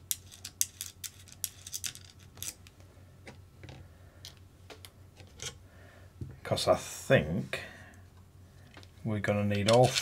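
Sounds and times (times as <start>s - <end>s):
small parts clicking and tapping: 0.0s - 5.6s.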